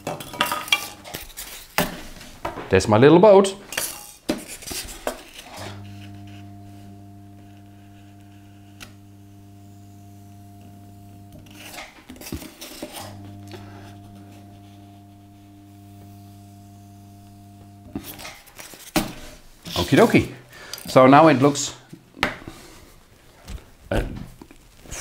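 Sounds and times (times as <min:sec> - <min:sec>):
hot wire foam cutter humming: 0:00.0 - 0:01.2, 0:05.4 - 0:21.1.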